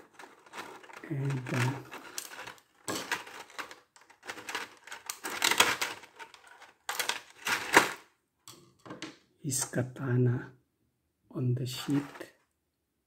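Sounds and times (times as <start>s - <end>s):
stiff plastic crackling: 0.0s - 8.1s.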